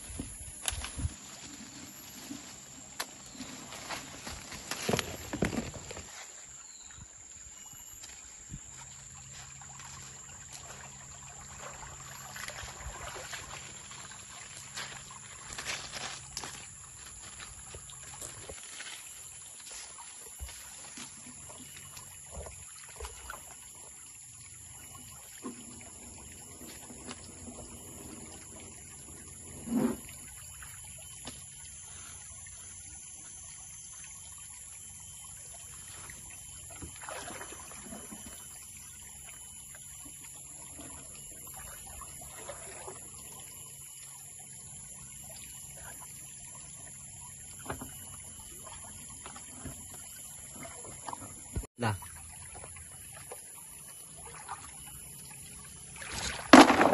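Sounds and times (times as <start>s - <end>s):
creek water splashing: 0.0s - 56.9s
pan knocking on creek bed: 56.2s - 56.9s.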